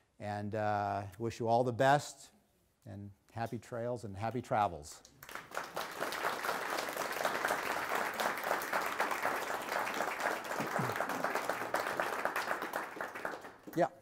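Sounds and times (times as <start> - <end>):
audience applauding: 5.2 - 13.8.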